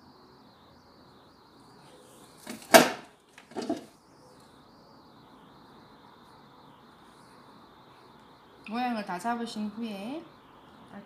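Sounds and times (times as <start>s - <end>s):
faint high whine: 0.0s - 11.0s.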